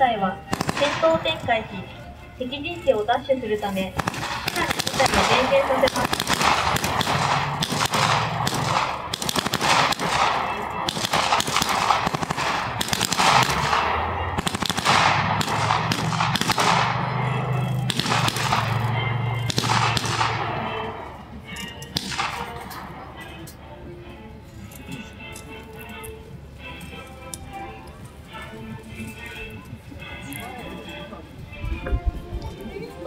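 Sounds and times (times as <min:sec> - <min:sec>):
machine-gun and rifle fire: 0:00.5 - 0:01.3, 0:04.0 - 0:20.8, 0:22.0 - 0:22.6
vehicle engine running: 0:12.3 - 0:31.9.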